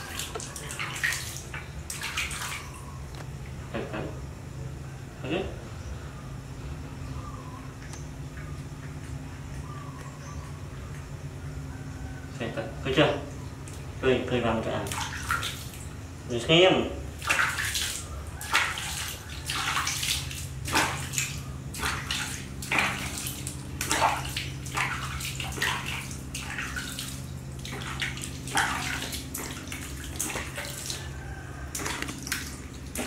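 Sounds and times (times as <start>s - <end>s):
water splashing and dripping: 0.0s - 3.6s, 14.7s - 16.0s, 17.1s - 33.0s
steady low hum: 0.0s - 33.0s.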